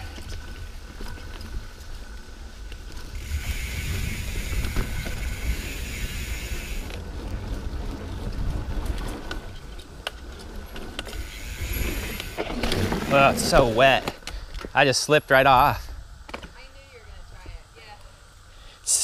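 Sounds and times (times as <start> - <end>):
wind rumbling on microphone: 0.0 - 14.7
steady hiss: 3.1 - 7.0, 11.0 - 19.0.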